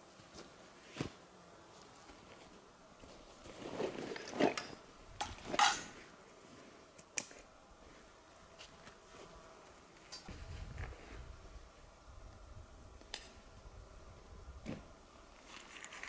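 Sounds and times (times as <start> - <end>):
handling scrapes and rustles: 0.2 - 11.3, 14.6 - 16.0.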